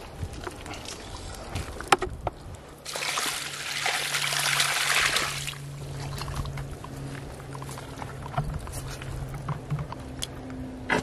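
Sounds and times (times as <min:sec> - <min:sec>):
water splashing onto muddy ground: 0:02.8 - 0:06.6.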